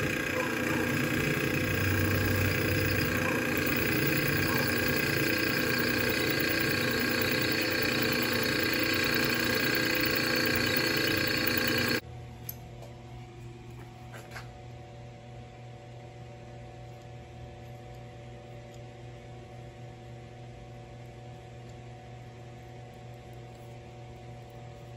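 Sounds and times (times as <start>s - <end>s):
drill press drilling into metal: 0.0s - 12.0s
quiet hum: 0.0s - 12.0s.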